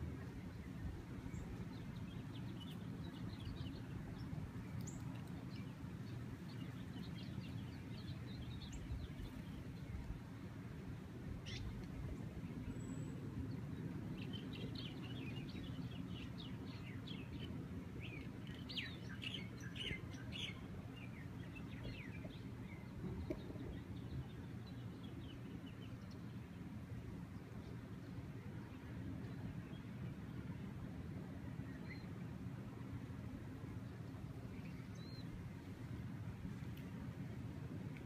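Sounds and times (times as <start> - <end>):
low rumble of wind: 0.0 - 38.0
small birds chirping: 11.4 - 26.3.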